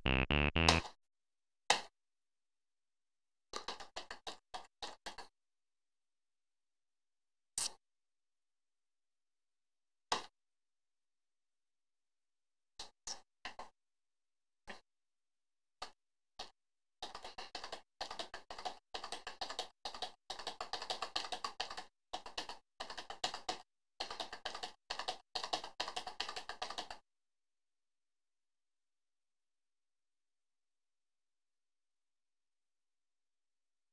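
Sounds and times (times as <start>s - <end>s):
keyboard typing: 0.0s - 0.8s, 17.1s - 27.0s.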